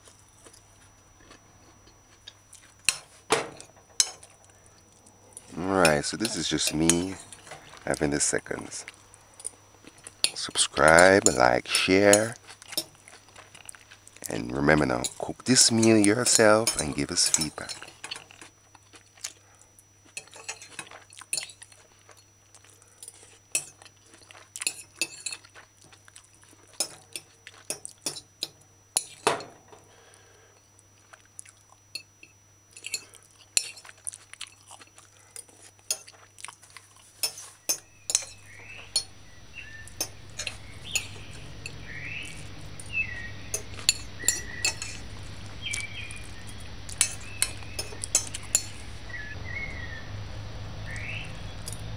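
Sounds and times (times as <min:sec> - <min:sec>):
background hiss: 0:02.4 - 0:20.5, 0:37.0 - 0:51.9
fork scraping on ceramic plate: 0:37.2 - 0:39.2, 0:43.5 - 0:45.1, 0:46.9 - 0:48.8.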